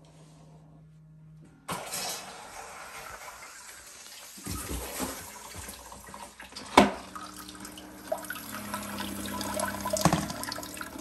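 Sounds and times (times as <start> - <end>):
water splashing into toilet bowl: 1.7 - 11.0.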